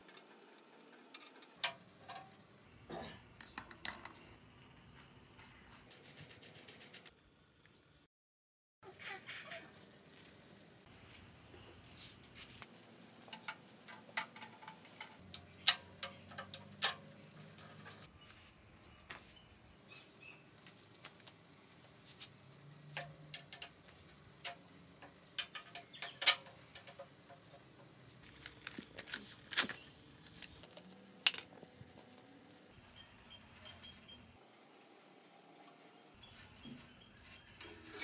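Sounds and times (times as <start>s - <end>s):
tools and bicycle parts clicking: 1.1s - 2.5s, 13.3s - 18.1s, 22.8s - 32.4s
background hiss: 8.9s - 38.0s.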